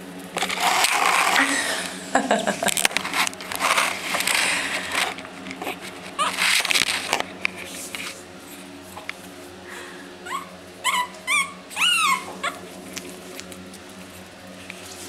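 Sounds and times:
puppy sniffing and snuffling: 2.8 - 8.7, 9.8 - 15.0
puppy squeaks: 6.2 - 6.4, 10.2 - 12.6.

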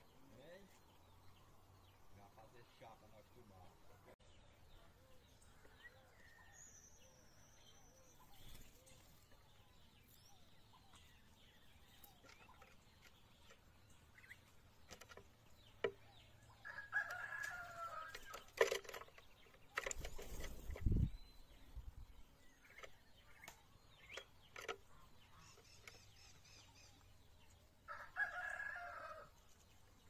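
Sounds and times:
rooster crowing: 16.6 - 18.2, 27.9 - 29.3
faint bird chirps: 19.0 - 27.6.

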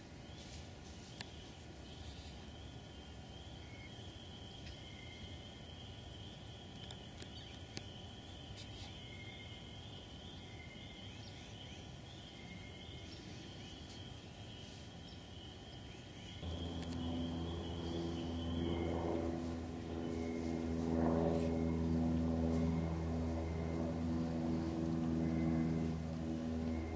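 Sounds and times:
motor engine humming: 16.4 - 26.9.

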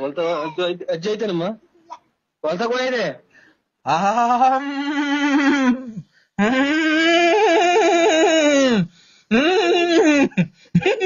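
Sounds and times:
person wailing: 3.9 - 11.0.

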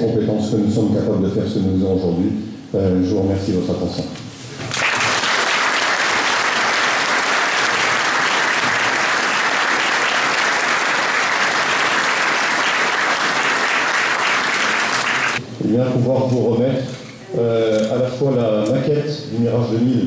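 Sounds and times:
audience applause: 4.7 - 15.4.

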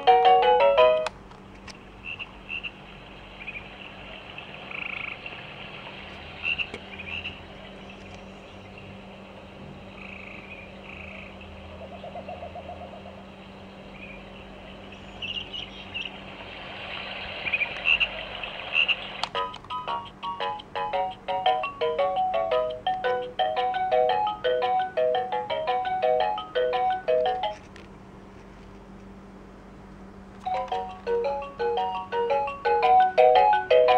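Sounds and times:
frog croaking: 2.0 - 2.8, 3.4 - 5.4, 6.4 - 7.5, 9.9 - 13.2, 17.4 - 19.2.

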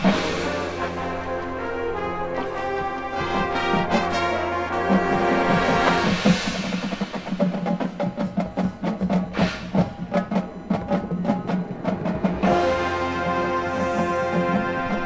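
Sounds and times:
rapid drum and percussion strikes: 0.0 - 1.9, 2.5 - 15.0
brass chord: 0.0 - 6.7, 12.4 - 15.0.

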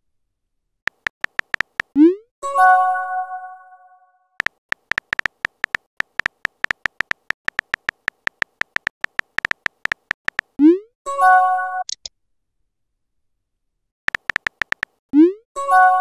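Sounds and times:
phone keyboard typing clicks: 0.9 - 2.0, 4.4 - 10.6, 14.1 - 15.0.

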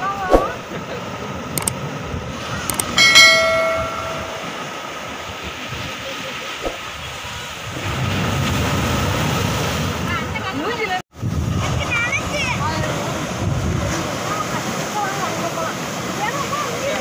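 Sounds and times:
short clicks: 2.7 - 3.0
ringing chime: 2.8 - 4.6
sea waves breaking over rocks: 5.8 - 10.4, 11.4 - 17.0.

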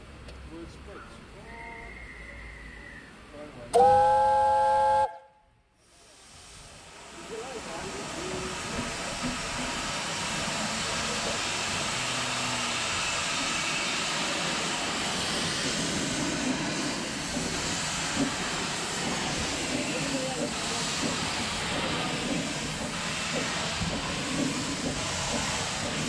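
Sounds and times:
steam locomotive hissing: 5.8 - 26.0.

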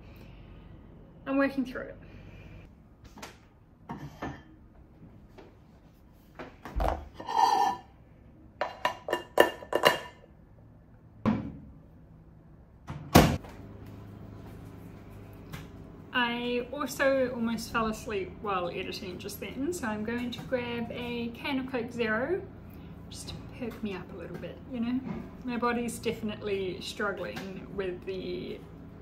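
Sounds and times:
microwave humming: 11.1 - 29.0.

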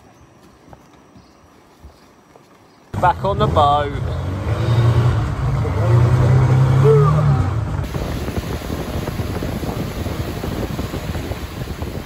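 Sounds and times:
wind buffeting microphone: 7.6 - 12.0.

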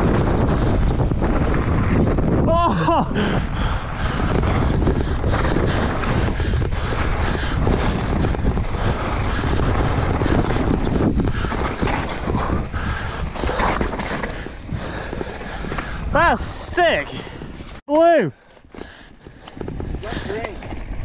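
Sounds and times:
mountain bike rattling: 0.0 - 17.8, 18.4 - 21.0
wind on microphone: 0.0 - 17.8, 18.8 - 21.0.

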